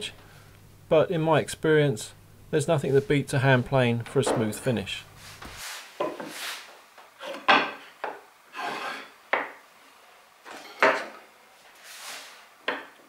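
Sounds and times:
steel square scraping on wood: 0:08.5 - 0:09.2.

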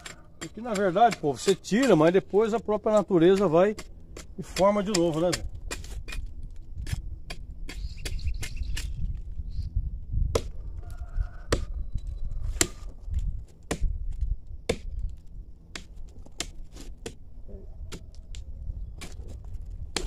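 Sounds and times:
blade chopping tree bark: 0:00.0 - 0:09.1, 0:10.2 - 0:10.6, 0:12.6 - 0:17.2.

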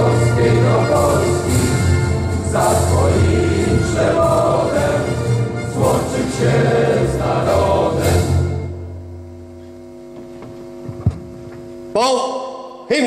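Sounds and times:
choir singing: 0:00.0 - 0:08.8.

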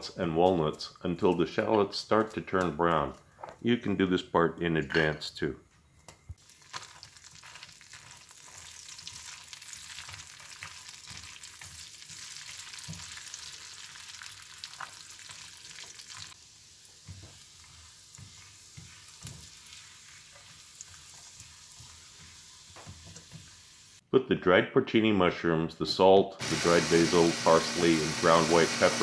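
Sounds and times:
butter and oil sizzling in pan: 0:06.4 - 0:24.0, 0:26.4 - 0:29.0
spatula scraping and tapping pan: 0:08.0 - 0:13.3, 0:16.9 - 0:23.6.

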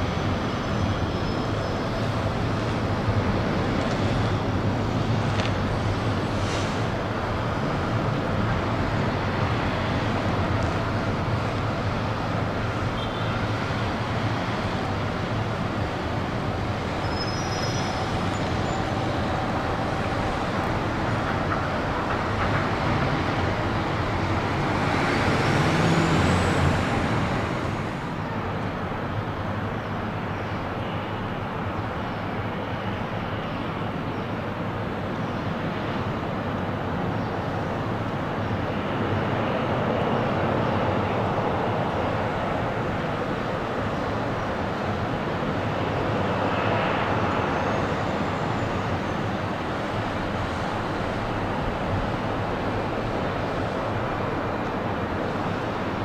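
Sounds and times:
jet engines taxiing: 0:00.0 - 0:56.0.

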